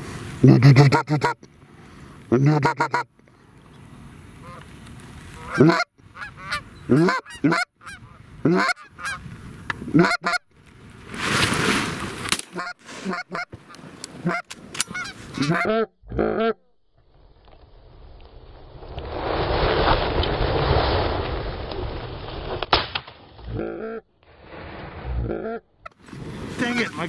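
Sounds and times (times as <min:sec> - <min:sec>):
geese honking: 0:02.5 - 0:03.0, 0:04.4 - 0:04.7, 0:05.3 - 0:09.3, 0:09.9 - 0:10.4, 0:12.5 - 0:15.8, 0:26.6 - 0:27.0.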